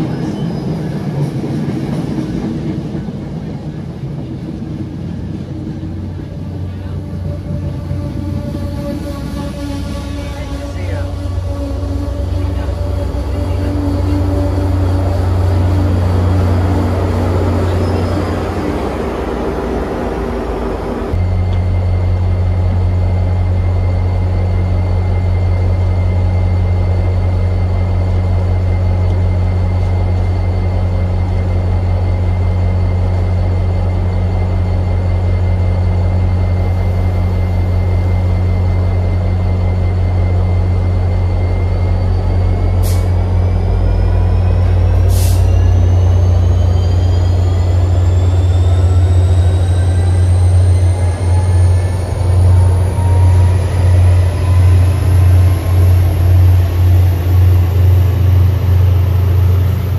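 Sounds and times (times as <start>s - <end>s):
rising train whine: 0.0s - 59.9s
diesel locomotive idling: 2.4s - 59.9s.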